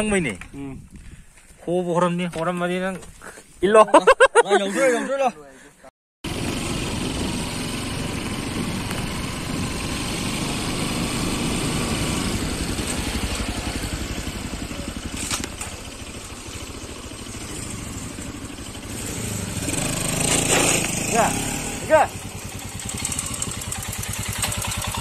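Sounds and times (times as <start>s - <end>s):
motorcycle engine running: 6.2s - 25.0s.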